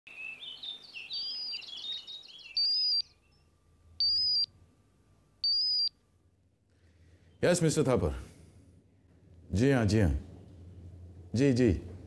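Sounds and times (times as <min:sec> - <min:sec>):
birds twittering: 0:00.1 - 0:04.5, 0:05.4 - 0:05.9.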